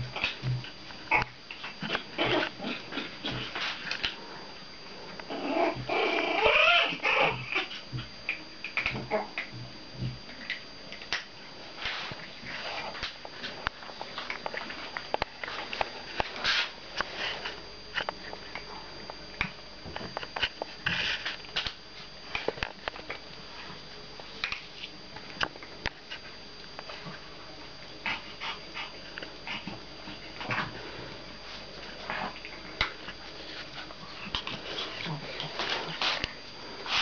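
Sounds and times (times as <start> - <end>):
puppies huffing and sniffing: 0.0 - 4.3, 10.3 - 19.5, 20.2 - 22.5, 26.0 - 37.0
puppies scuffling on mat: 0.0 - 8.1, 8.8 - 37.0.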